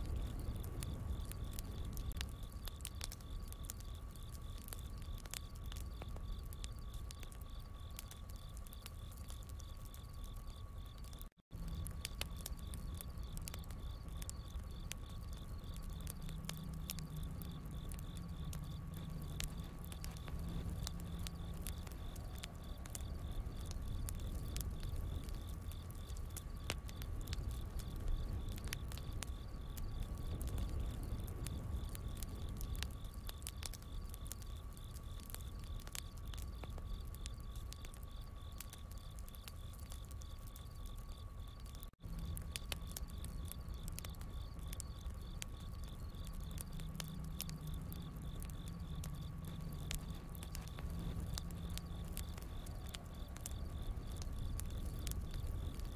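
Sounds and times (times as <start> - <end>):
crickets chirping: 0.0 - 55.9
wood fire crackling and popping: 0.0 - 55.9
low rumble: 11.5 - 32.8.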